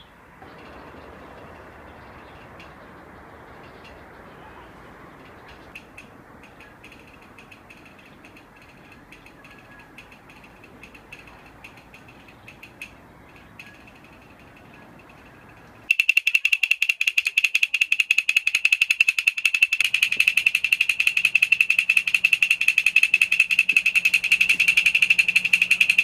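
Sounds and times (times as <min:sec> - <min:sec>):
faint outdoor background: 0:00.0 - 0:26.0
woodblock roll of sharp clacks: 0:05.4 - 0:26.0.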